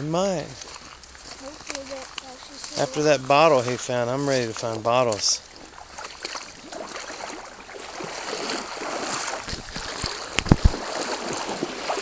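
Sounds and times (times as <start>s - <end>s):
creek water running and splashing: 0.0s - 12.0s.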